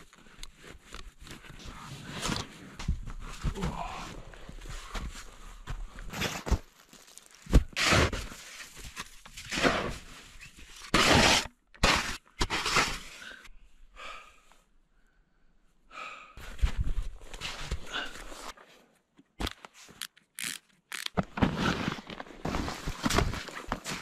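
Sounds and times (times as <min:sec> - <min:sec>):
packed snow crunching and scraping: 0:21.4 - 0:24.0.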